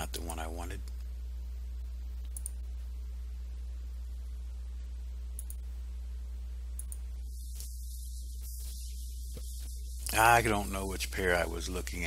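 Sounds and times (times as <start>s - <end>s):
low hum: 0.0s - 12.0s
computer mouse clicks: 2.2s - 2.6s, 5.4s - 5.6s, 6.8s - 7.7s.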